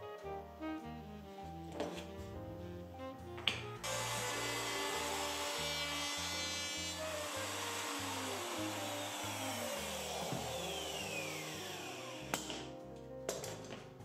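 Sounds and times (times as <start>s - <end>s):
wood router cutting: 3.8s - 12.7s.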